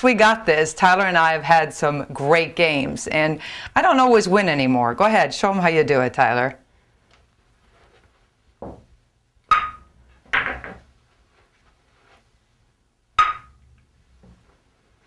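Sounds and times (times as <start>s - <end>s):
pool balls clicking: 8.6s - 11.0s, 13.2s - 14.4s
pool balls clattering: 9.5s - 11.0s.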